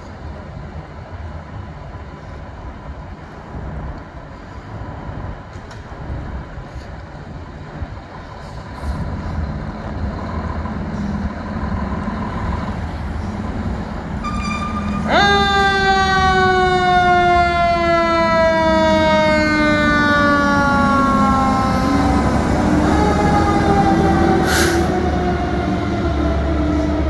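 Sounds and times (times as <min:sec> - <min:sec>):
fire engine rumbling: 0:00.0 - 0:27.0
siren sweeping up and down: 0:14.2 - 0:27.0.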